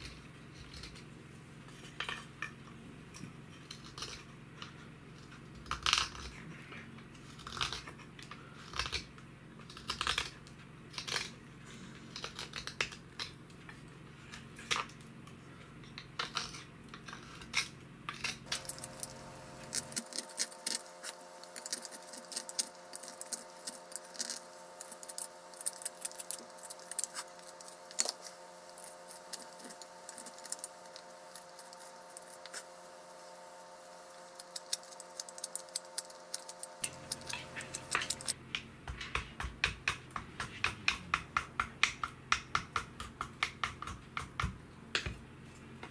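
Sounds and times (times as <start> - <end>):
knife shaving wood: 0.0 - 44.6.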